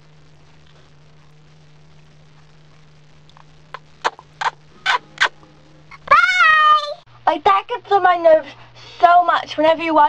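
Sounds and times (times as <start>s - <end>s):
faint low hum: 0.0s - 10.0s
lips smacking: 3.3s - 5.4s.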